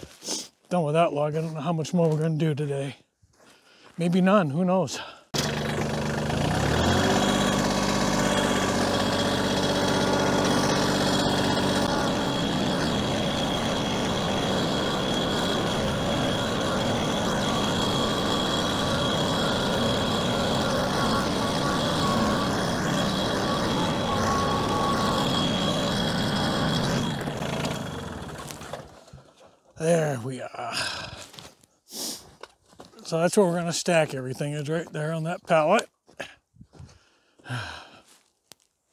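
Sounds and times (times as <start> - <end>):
engine revving and humming: 5.4 - 29.0
faint high whine: 11.5 - 27.8.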